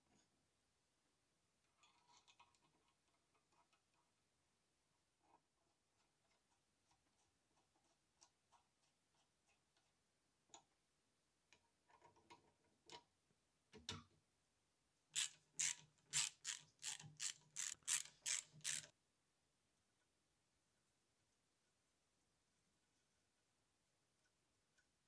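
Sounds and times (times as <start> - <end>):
ratchet clicking: 15.2 - 18.9.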